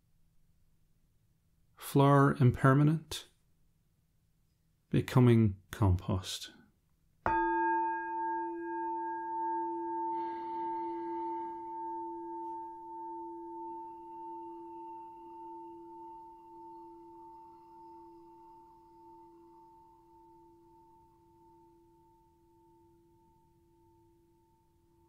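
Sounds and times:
meditation bowl ringing: 7.3s - 25.0s.

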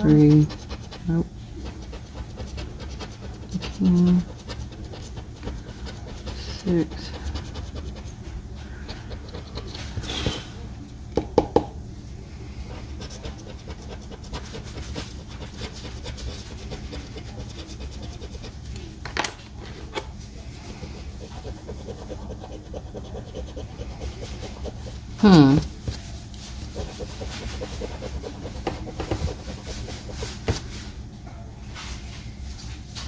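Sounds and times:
scratcher rasping on lottery ticket: 0.0s - 8.1s, 13.0s - 18.5s, 26.5s - 30.4s.

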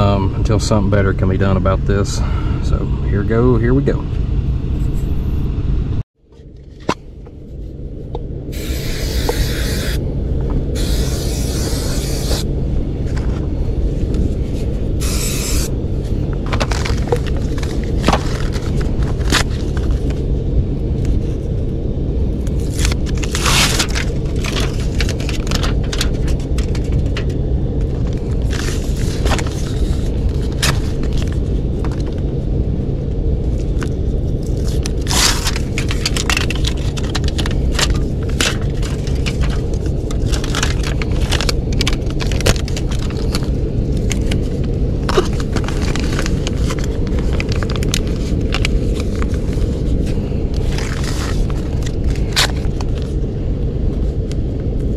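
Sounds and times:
blower rumbling: 0.0s - 54.9s
foil tape crinkling: 16.4s - 20.2s, 22.5s - 27.4s, 33.6s - 53.2s.

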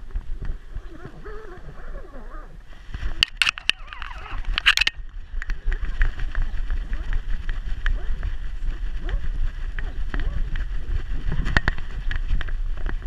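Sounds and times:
camera handling rumble and clicks: 3.0s - 8.2s, 11.3s - 13.0s.

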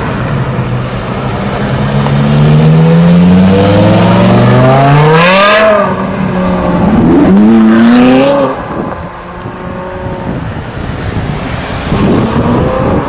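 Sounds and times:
car engine accelerating hard: 1.3s - 8.8s.

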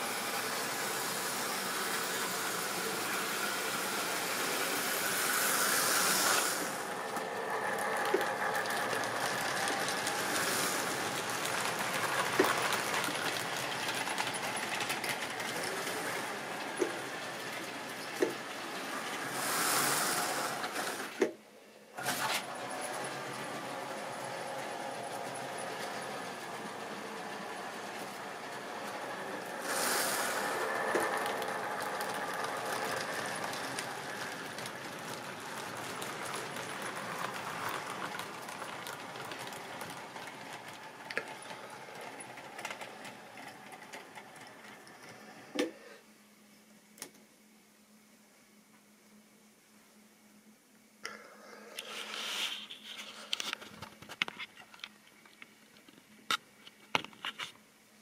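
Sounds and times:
model train whirring rattle: 0.0s - 21.2s, 22.0s - 45.3s.

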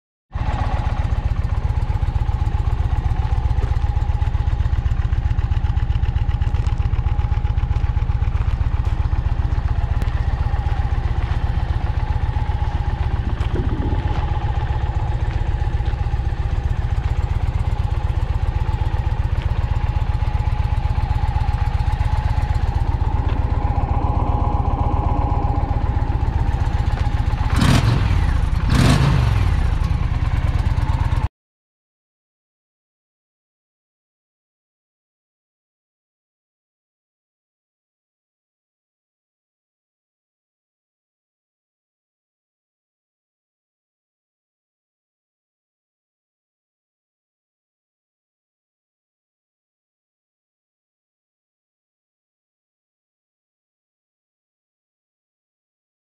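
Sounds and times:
motorcycle engine idling and revving: 0.3s - 31.3s.

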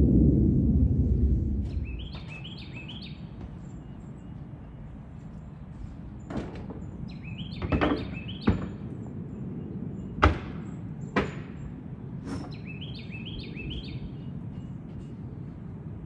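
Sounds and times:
outdoor background noise: 0.0s - 16.0s
bird chirping: 1.6s - 5.8s, 6.8s - 11.7s, 12.4s - 15.2s
sharp knocks: 7.6s - 8.8s, 10.2s - 11.6s.

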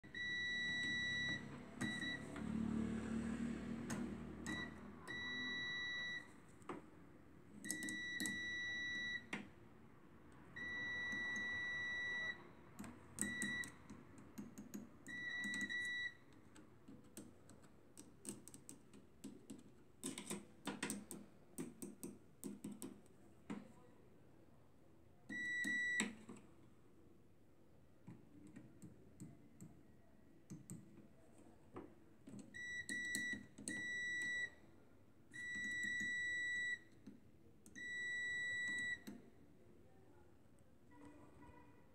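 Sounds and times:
multimeter continuity beeps: 0.0s - 2.4s, 4.4s - 6.4s, 7.6s - 9.5s, 10.6s - 12.5s, 13.2s - 13.8s, 15.0s - 16.3s, 25.3s - 26.2s, 32.5s - 34.6s, 35.3s - 37.0s, 37.7s - 39.2s.

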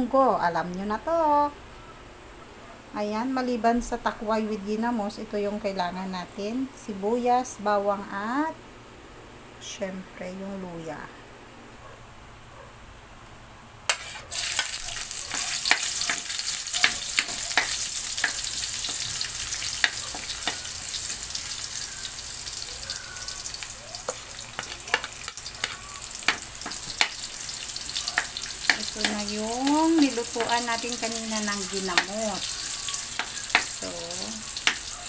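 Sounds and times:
food sizzling in hot oil: 13.9s - 35.0s
spatula stirring in pan: 13.9s - 35.0s.

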